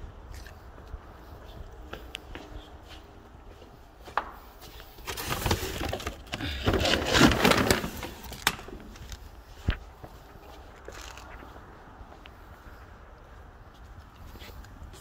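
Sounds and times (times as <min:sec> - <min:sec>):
plastic bags rustling: 0:05.0 - 0:09.0.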